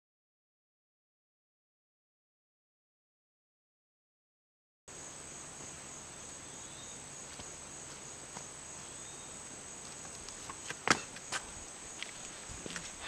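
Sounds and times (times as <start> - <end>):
insects chirring: 4.9 - 13.0.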